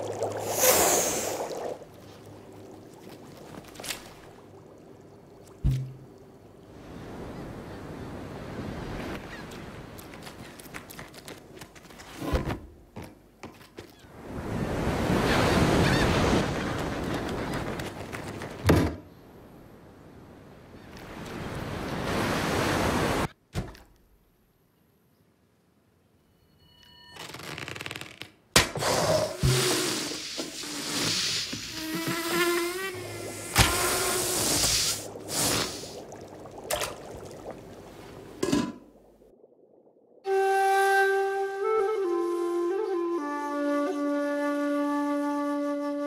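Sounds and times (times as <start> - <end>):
faint hiss: 0.0 - 7.8, 28.8 - 39.3
ocean wave surge: 21.3 - 23.3.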